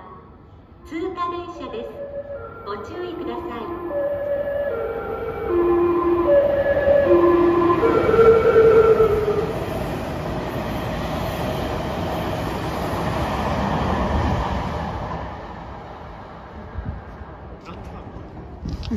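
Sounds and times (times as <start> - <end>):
train rushing through station: 0.0 - 18.9
train music horn melody: 1.3 - 9.8.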